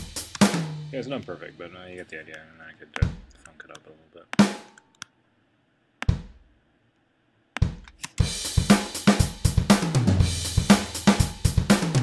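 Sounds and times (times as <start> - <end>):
programmed drum beat: 0.0 - 2.1, 3.0 - 3.5, 4.3 - 4.8, 6.0 - 6.6, 7.6 - 12.0.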